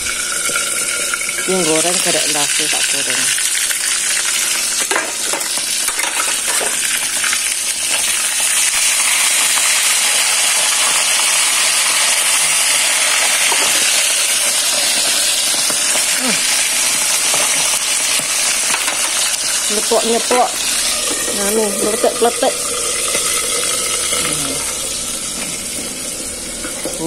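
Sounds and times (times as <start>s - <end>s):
hot oil sizzling: 0.0s - 27.0s.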